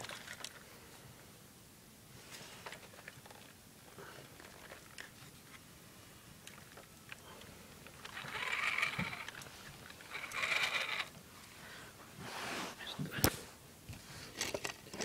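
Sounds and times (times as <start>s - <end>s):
small electric motor whirring: 8.0s - 11.2s.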